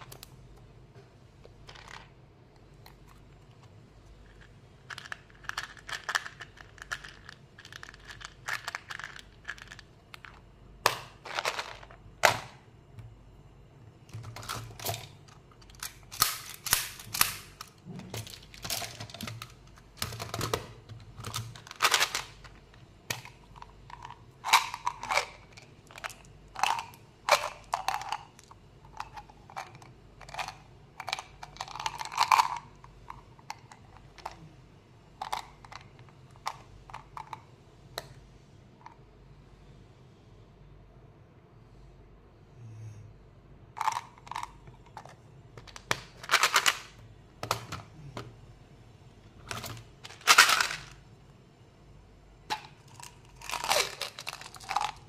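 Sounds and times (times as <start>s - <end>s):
hard candy rattling: 4.2s - 10.4s, 23.1s - 32.8s, 50.0s - 51.0s, 52.5s - 55.0s.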